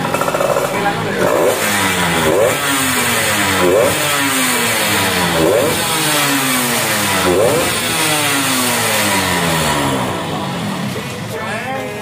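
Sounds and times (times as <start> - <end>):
motorcycle engine revving: 0.0 - 11.5.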